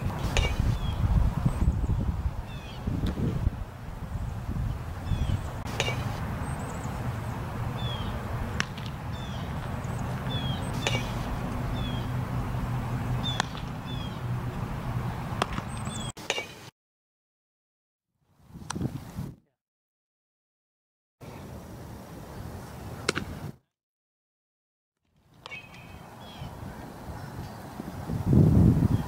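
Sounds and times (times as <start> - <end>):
wind rumble on microphone: 0.0 - 16.1, 18.4 - 19.5, 25.9 - 29.0
small birds chirping: 0.2 - 3.0, 4.0 - 16.7, 25.4 - 27.8.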